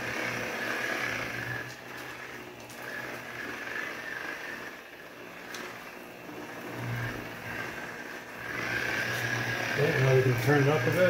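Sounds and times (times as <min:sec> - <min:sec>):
rotary buffer motor whine: 0:00.0 - 0:11.0.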